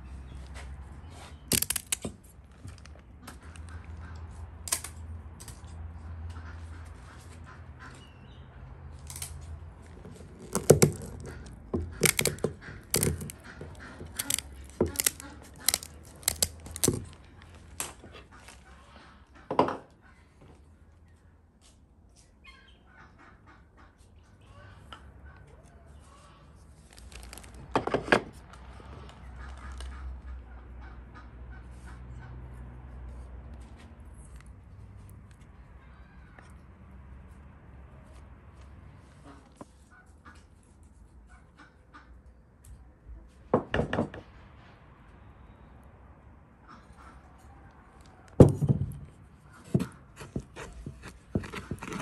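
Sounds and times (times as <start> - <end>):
kitchen shears snipping fish fins: 12.0 - 16.9.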